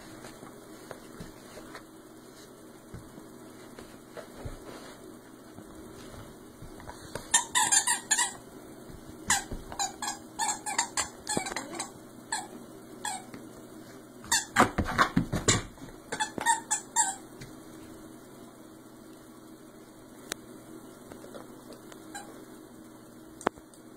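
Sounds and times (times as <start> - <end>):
dog toy squeaking: 7.3 - 8.4, 9.3 - 12.5.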